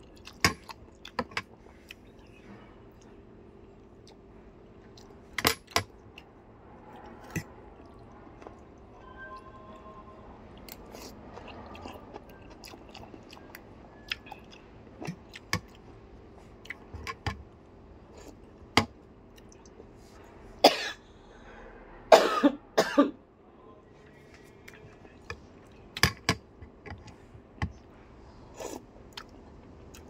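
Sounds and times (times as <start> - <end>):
person chewing noodles: 0.0 - 5.2, 5.8 - 8.7, 10.6 - 17.3, 28.5 - 30.0
person coughing: 20.6 - 21.0, 22.1 - 23.2.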